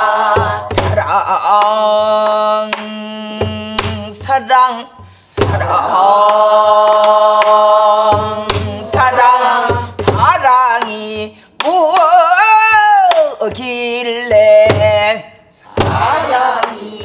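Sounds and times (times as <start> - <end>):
woman singing folk song: 0.8 - 5.2, 8.3 - 15.4.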